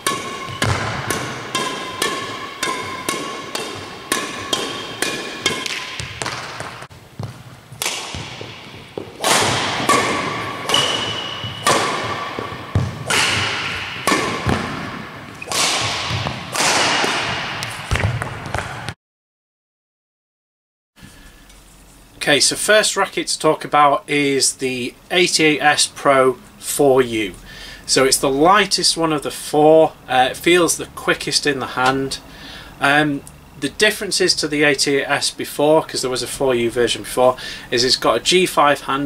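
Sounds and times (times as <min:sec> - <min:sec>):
shuttlecock hit with racket: 0:00.0 - 0:19.0.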